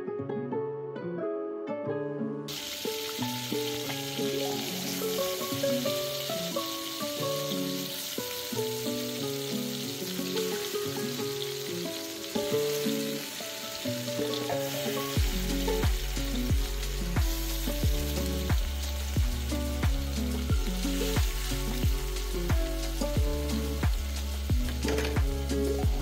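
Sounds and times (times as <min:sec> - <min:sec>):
prawns sizzling in oil: 0:02.5 - 0:26.0
music with drum beat and bass: 0:02.6 - 0:09.2, 0:14.0 - 0:26.0.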